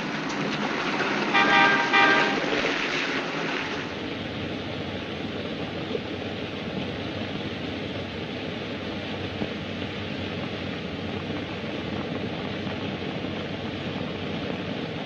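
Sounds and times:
street traffic noise: 0.0s - 15.0s
car horn honking: 1.3s - 2.5s.

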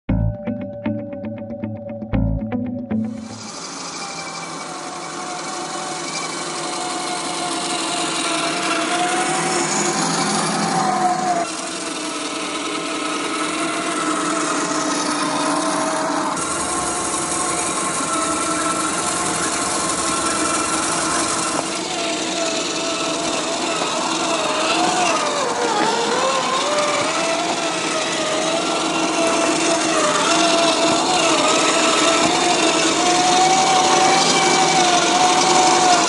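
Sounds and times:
toy car motor whine: 3.3s - 36.0s.

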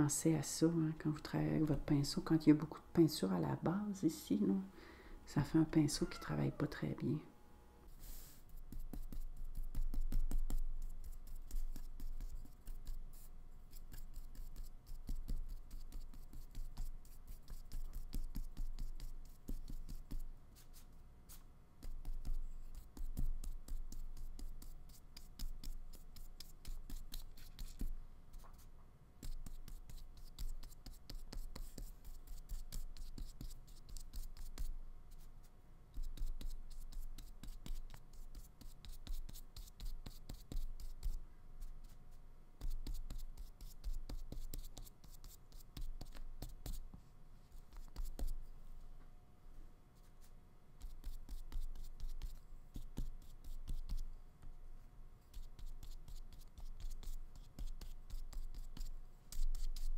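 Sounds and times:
paintbrush scrubbing across paper: 7.9s - 48.5s.

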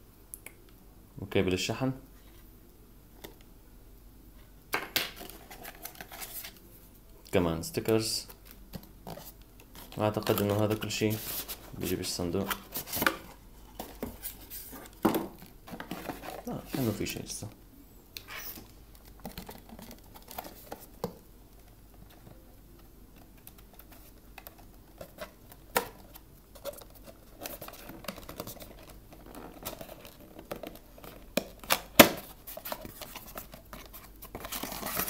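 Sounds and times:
cardboard packaging rustling: 5.1s - 6.7s, 8.2s - 17.3s, 18.3s - 35.0s.

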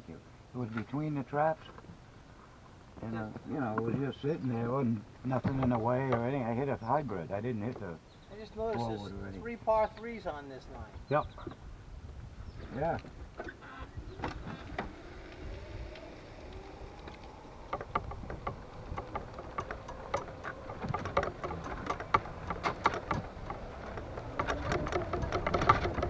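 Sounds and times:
golf cart whine: 13.1s - 26.0s
golf clubs rattling: 17.4s - 26.0s.

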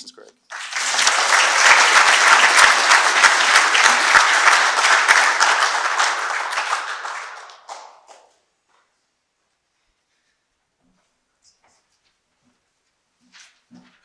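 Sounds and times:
audience applauding: 0.5s - 8.4s.

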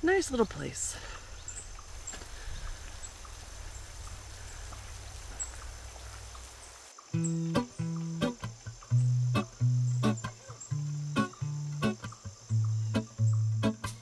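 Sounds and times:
faint hiss: 0.0s - 14.0s
soft rain ticks: 0.3s - 13.8s
acoustic guitar music: 7.1s - 14.0s.

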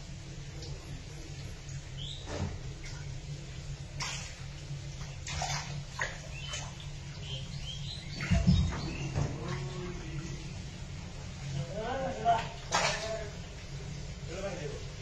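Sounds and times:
low steady rumble: 0.0s - 15.0s
small sharp water splashes: 1.7s - 9.8s, 12.3s - 13.8s
heavy dull thump: 8.2s - 9.4s.

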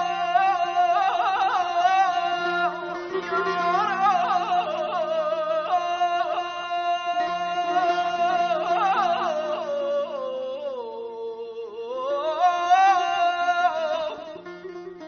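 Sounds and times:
man singing with vocal trills: 0.0s - 15.0s
held accompanying notes: 2.1s - 5.6s.

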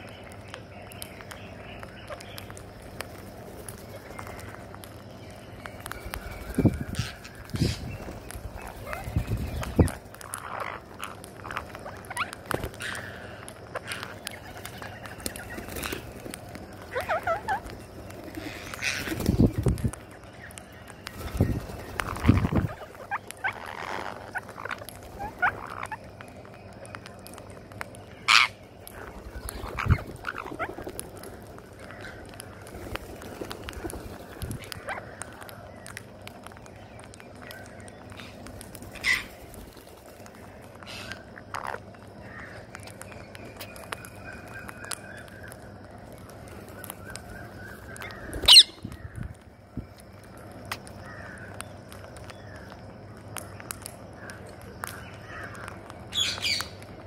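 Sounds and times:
parakeets chirping: 0.0s - 53.0s, 53.6s - 57.0s
birds pecking clicks: 0.0s - 57.0s
harsh parakeet squawk: 48.4s - 48.8s
shrill wavering bird call: 48.4s - 48.8s.

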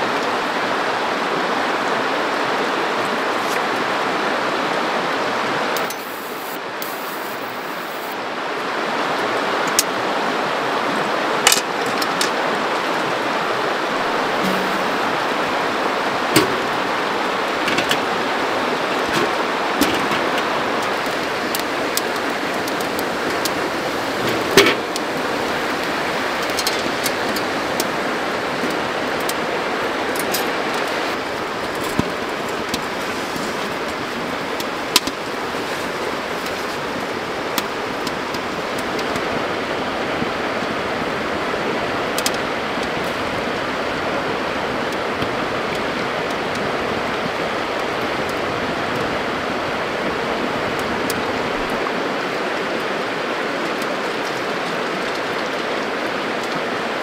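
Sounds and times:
flowing river water: 0.0s - 57.0s
wood fire crackling and popping: 13.8s - 39.4s.

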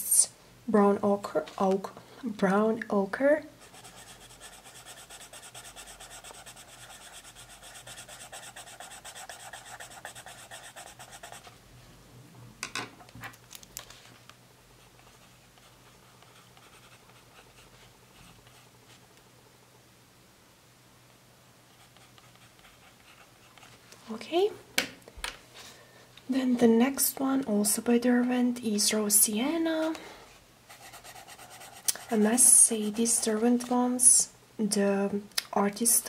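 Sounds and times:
coloured pencil scribbling on paper: 3.6s - 11.5s, 15.0s - 18.6s, 30.7s - 33.4s.

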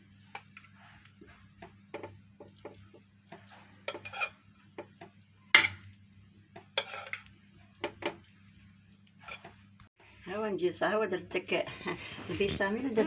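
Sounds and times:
metal spoon scraping pans: 3.3s - 4.4s, 6.6s - 7.3s, 9.2s - 9.6s.

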